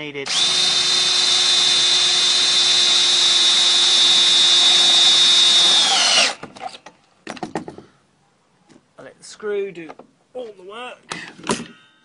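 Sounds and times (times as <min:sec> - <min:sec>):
drill driving screw into wood: 0:00.3 - 0:06.7.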